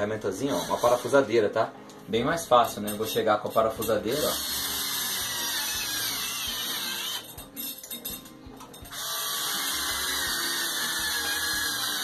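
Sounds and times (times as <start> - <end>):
cordless drill whirring: 4.3 - 7.3, 8.9 - 12.0.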